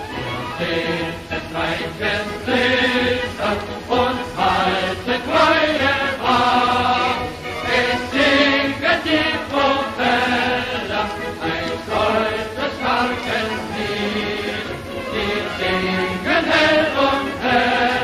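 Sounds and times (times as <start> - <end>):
choir chanting: 0.0 - 18.0.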